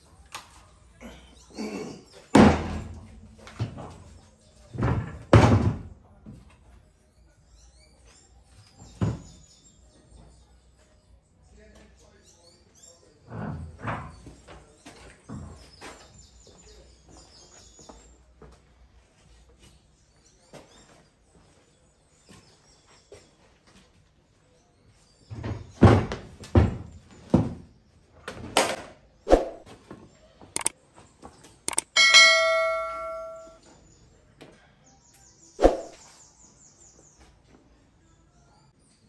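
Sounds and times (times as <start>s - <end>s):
metal tools knocking and clanking: 31.8s - 33.6s
struck metal ringing: 31.9s - 33.6s.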